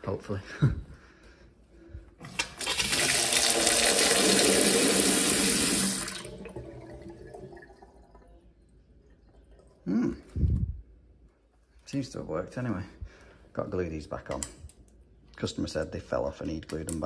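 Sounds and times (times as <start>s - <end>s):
tap water running into sink: 2.3s - 8.1s
water trickling down drain: 3.4s - 10.2s.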